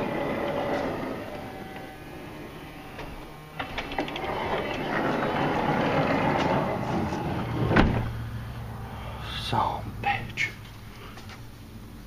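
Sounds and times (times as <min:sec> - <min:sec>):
loud door clunk: 0:00.0 - 0:08.2
sliding door motor whirring: 0:00.0 - 0:08.6
door mechanism clicks: 0:03.0 - 0:06.7.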